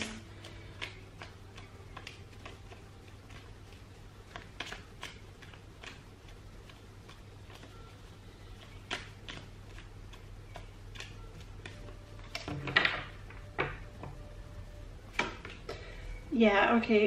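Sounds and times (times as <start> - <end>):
cards being shuffled: 0.0 - 12.8.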